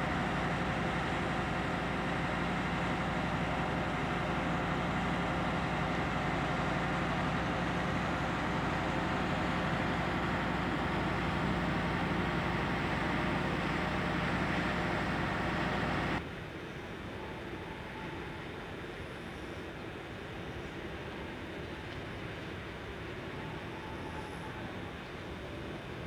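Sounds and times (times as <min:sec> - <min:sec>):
diesel engine idling: 0:00.0 - 0:16.2.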